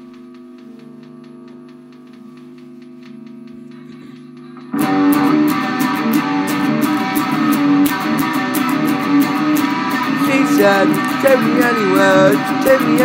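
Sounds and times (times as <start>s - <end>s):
guitar band playing: 3.7s - 13.0s.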